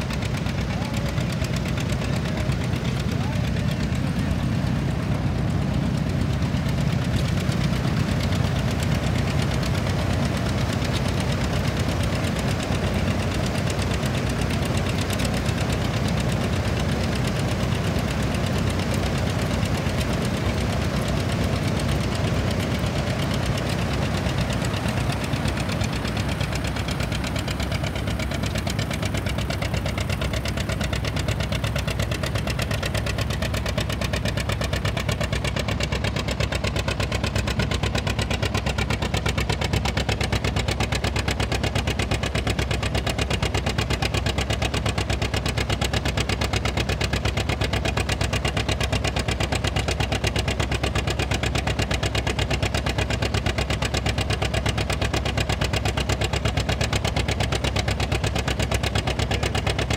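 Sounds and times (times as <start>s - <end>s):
diesel engine running under load: 0.0s - 59.9s
fan blades whirring: 1.6s - 41.1s.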